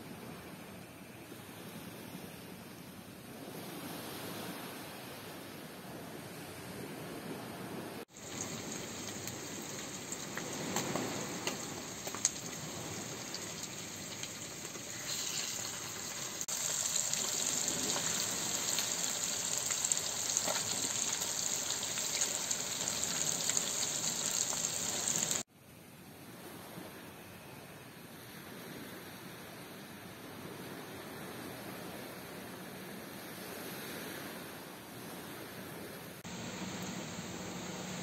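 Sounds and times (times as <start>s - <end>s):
food frying in hot oil: 8.1s - 25.4s, 36.2s - 38.0s.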